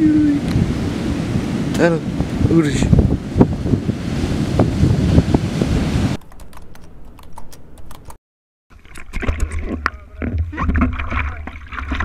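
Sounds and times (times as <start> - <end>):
ocean surf breaking: 0.0 - 6.2
wind buffeting microphone: 0.0 - 6.2
water sloshing and splashing: 8.7 - 12.0.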